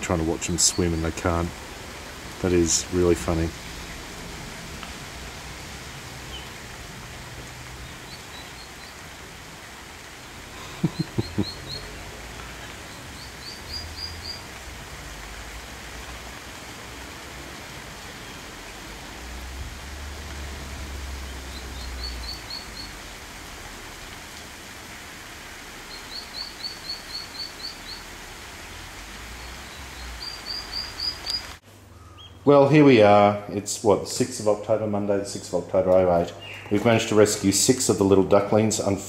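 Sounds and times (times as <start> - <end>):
steady outdoor hiss: 0.0 - 39.0
ducklings peeping: 6.3 - 6.6, 10.7 - 12.0, 12.9 - 14.5, 29.5 - 32.4.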